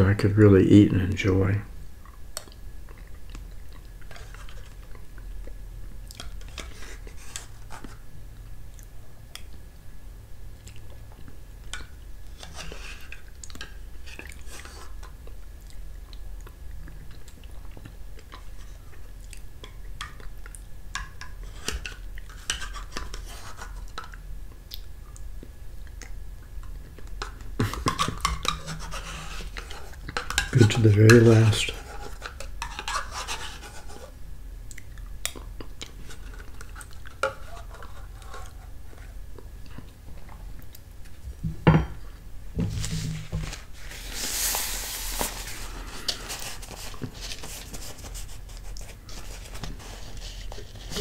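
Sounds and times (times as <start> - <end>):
chewing: 10.6 - 11.9, 13.0 - 20.7
spoon scraping plastic cup: 27.6 - 34.1, 36.0 - 39.1, 42.9 - 51.0.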